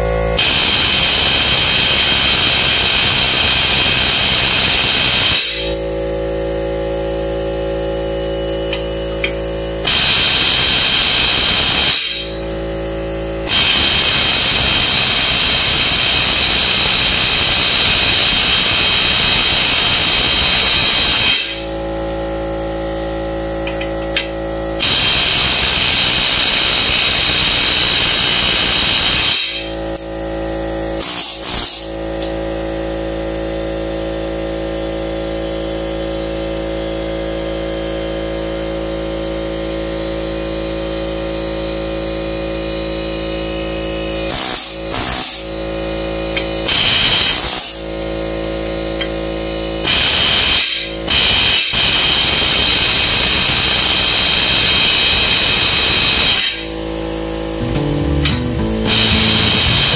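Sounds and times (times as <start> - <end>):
pneumatic air chisel hammering: 0.4 - 6.0, 8.6 - 12.8, 13.4 - 21.8, 23.5 - 30.2, 30.9 - 32.4, 44.2 - 47.9, 48.6 - 56.9, 58.8 - 59.9
steady tonal hum: 57.5 - 59.9.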